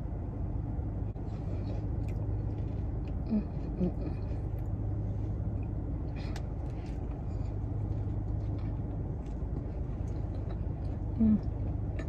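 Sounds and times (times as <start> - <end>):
car engine idling: 0.0 - 12.0
person humming: 3.2 - 4.4, 11.1 - 11.6.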